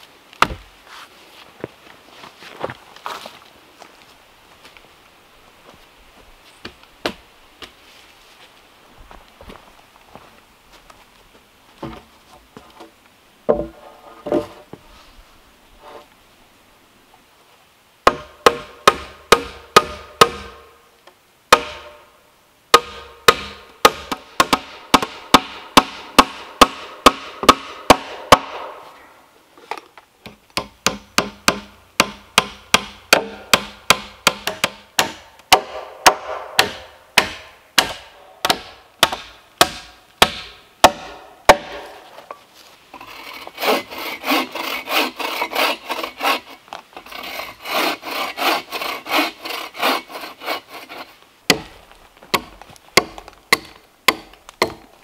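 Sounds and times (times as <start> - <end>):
bow saw cutting log: 42.9 - 51.2.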